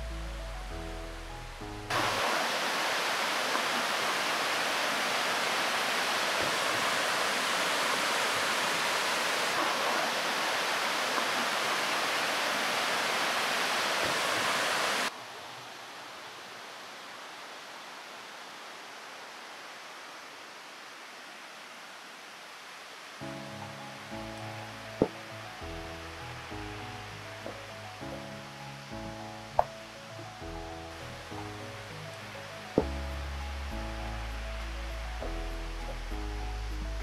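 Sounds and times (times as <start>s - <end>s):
waterfall rushing: 1.9s - 15.2s.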